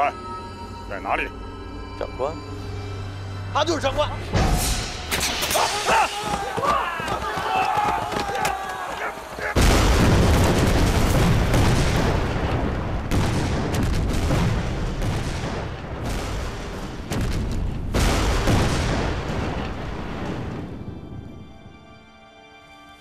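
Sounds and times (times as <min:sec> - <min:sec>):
music: 0:00.0 - 0:06.5, 0:20.3 - 0:23.0
explosions with rumble: 0:09.6 - 0:21.0.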